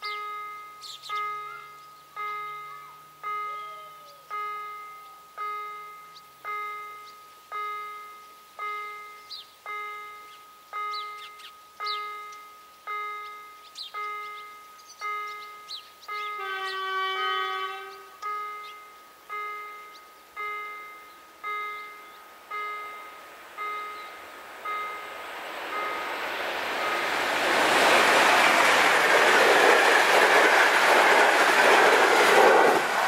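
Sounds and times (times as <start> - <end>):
held pitched tone: 0.0 - 17.3
electronic crossing bell ringing: 0.0 - 17.6, 18.2 - 27.2
birds chirping: 0.0 - 31.8.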